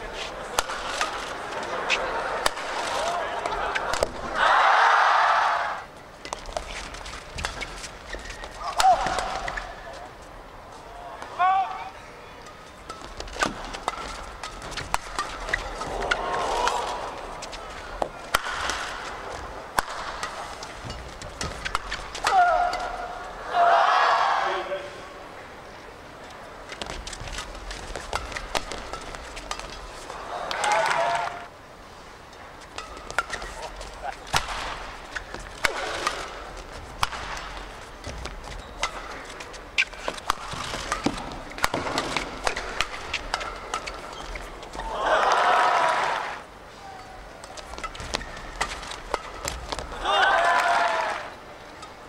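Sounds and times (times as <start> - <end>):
crowd noise in large hall: 0.0 - 52.0
shoes squeaking on court floor: 6.3 - 10.3, 12.7 - 15.9, 37.8 - 44.8, 46.7 - 50.0
rackets striking shuttlecock: 12.4 - 16.8, 17.4 - 23.1, 26.7 - 29.9, 32.7 - 44.4, 47.4 - 50.0.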